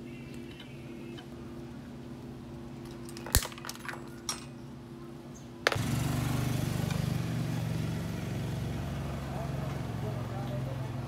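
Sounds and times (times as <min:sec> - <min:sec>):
steady low hum: 0:00.0 - 0:11.0
low engine rumble: 0:04.5 - 0:11.0.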